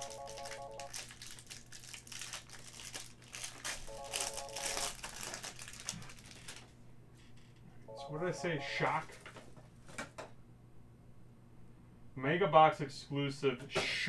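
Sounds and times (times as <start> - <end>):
cellophane wrap crinkling: 0.0 - 6.8.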